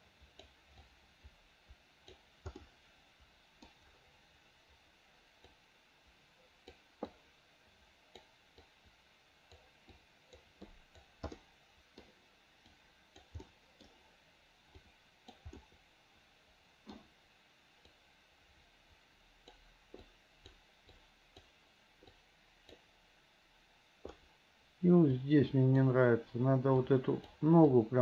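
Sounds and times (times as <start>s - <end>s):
faint hiss: 0.0s - 28.0s
computer mouse clicking: 0.3s - 0.9s, 2.0s - 2.8s, 3.6s - 3.9s, 6.6s - 7.2s, 8.1s - 8.8s, 9.5s - 14.0s, 14.7s - 15.8s, 16.8s - 17.1s, 19.4s - 22.9s, 24.0s - 24.3s.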